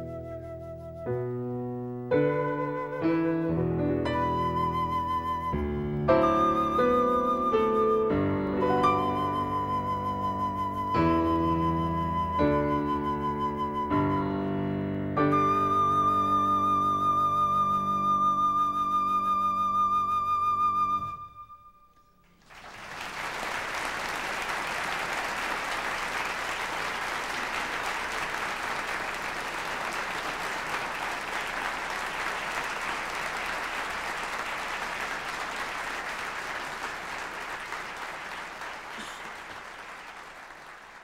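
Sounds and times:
flute and piano note: 0:00.0 - 0:22.2
audience applauding: 0:22.2 - 0:41.0.

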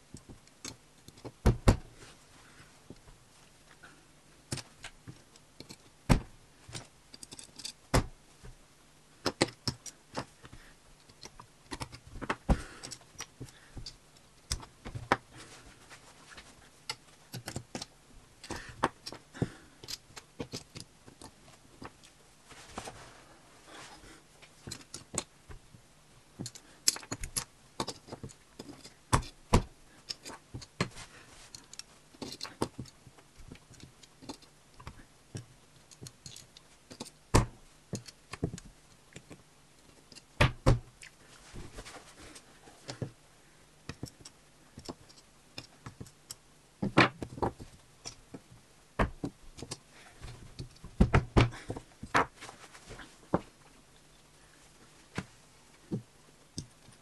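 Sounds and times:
soft rustling: 0:01.9 - 0:04.0, 0:14.7 - 0:17.3, 0:21.0 - 0:24.9, 0:30.3 - 0:33.8, 0:41.0 - 0:44.1, 0:49.9 - 0:56.1
plastic pieces clicking and rattling: 0:06.7 - 0:07.8, 0:16.9 - 0:19.2, 0:19.8 - 0:21.4, 0:26.4 - 0:29.4, 0:30.0 - 0:30.9, 0:31.5 - 0:37.2, 0:37.9 - 0:40.3.

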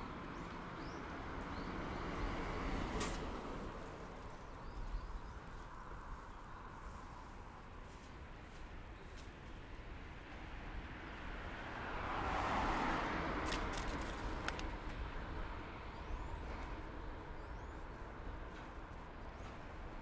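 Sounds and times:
car passing by: 0:00.0 - 0:04.8, 0:10.1 - 0:18.8
sharp clicks: 0:13.4 - 0:15.0.

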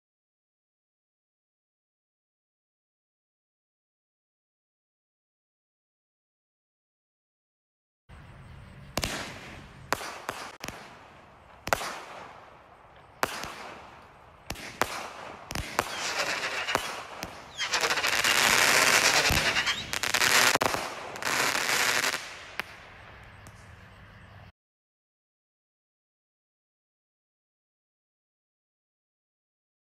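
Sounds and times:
dense crackling fireworks: 0:08.8 - 0:23.9
firework launch shots: 0:08.9 - 0:23.7.

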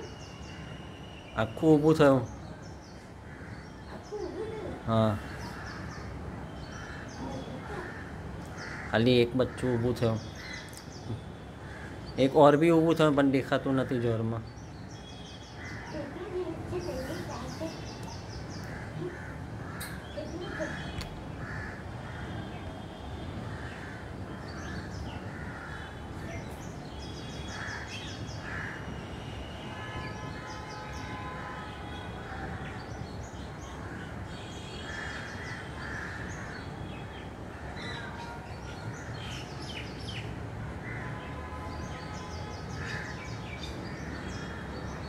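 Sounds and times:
small birds chirping and trilling: 0:00.0 - 0:45.0
crows cawing: 0:03.2 - 0:04.4, 0:05.1 - 0:10.8, 0:11.6 - 0:12.2, 0:15.5 - 0:17.0, 0:18.5 - 0:22.6, 0:23.4 - 0:26.4, 0:27.4 - 0:29.0, 0:33.8 - 0:36.8, 0:37.5 - 0:40.2, 0:40.8 - 0:41.3, 0:42.7 - 0:44.9.

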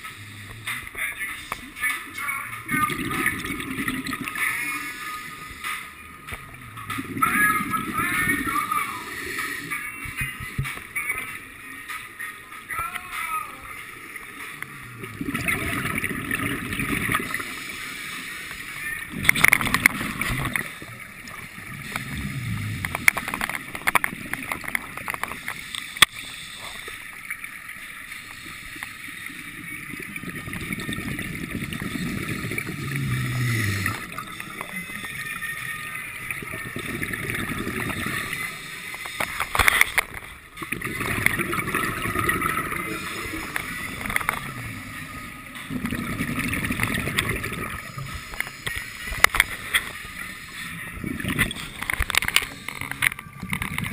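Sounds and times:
bubbles rushing and gurgling: 0:00.0 - 0:11.8, 0:13.7 - 0:53.9.

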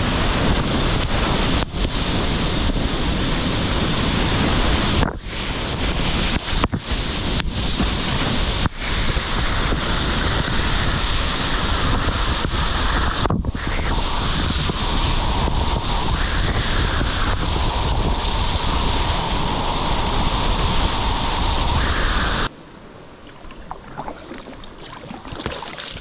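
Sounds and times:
whitewater rushing and splashing: 0:23.0 - 0:26.0.

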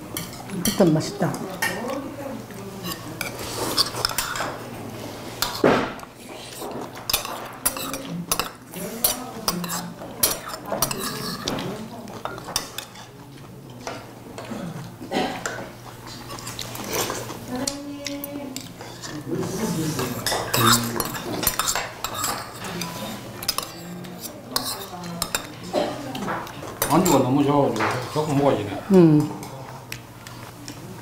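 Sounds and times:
cutlery clinking against dishes: 0:00.1 - 0:02.0, 0:02.8 - 0:04.6, 0:05.4 - 0:19.2, 0:19.8 - 0:28.6
cutlery clatter: 0:02.8 - 0:04.6, 0:05.4 - 0:13.1, 0:20.0 - 0:28.5.

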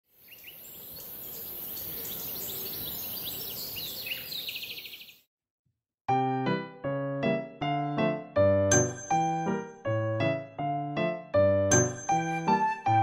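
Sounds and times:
birds chirping: 0:00.1 - 0:05.3
keyboard music notes: 0:06.1 - 0:13.0.

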